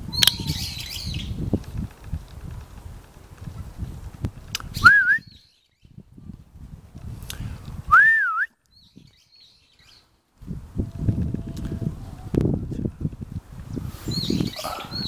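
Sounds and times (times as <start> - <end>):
person whistling: 4.8 - 5.3, 7.9 - 8.6.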